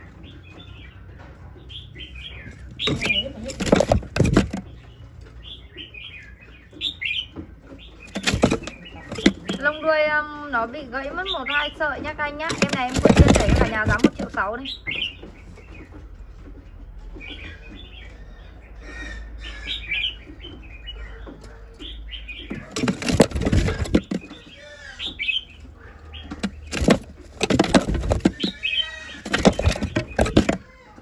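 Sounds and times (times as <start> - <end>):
bird chirping and calling: 0.0 - 10.3, 11.0 - 16.0, 16.7 - 31.0
wings fluttering and knocking: 2.6 - 4.8, 8.0 - 9.8, 12.4 - 14.6, 22.5 - 24.6, 26.3 - 30.7.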